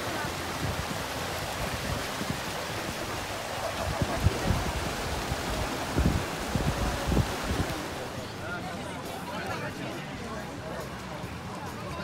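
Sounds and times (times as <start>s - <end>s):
rushing outdoor hiss: 0.0s - 8.4s
wind buffeting microphone: 0.1s - 8.1s.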